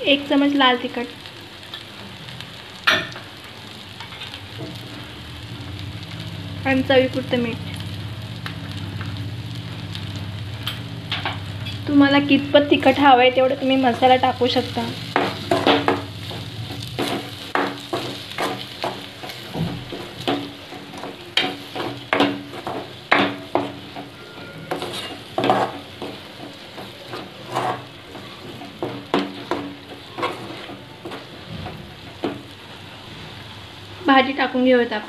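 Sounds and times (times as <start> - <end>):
paste sizzling in oil: 0.0 - 34.9
spoon scraping metal pan: 20.2 - 31.4.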